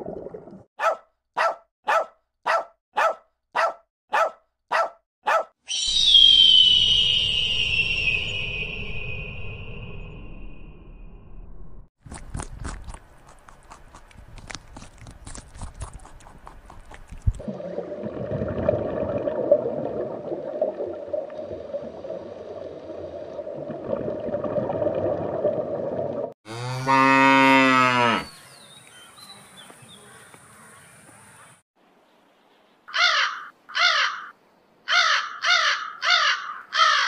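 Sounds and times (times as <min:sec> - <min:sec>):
calf mooing: 0:26.5 - 0:28.3.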